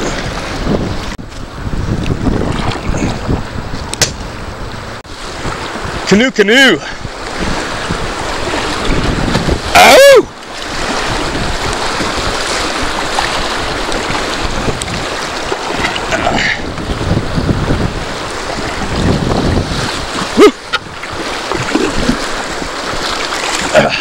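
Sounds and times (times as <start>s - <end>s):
wind buffeting microphone: 0.0s - 6.2s, 6.8s - 24.0s
river rapids splashing against canoe: 0.0s - 24.0s
person shouting: 9.7s - 10.3s, 20.4s - 20.6s.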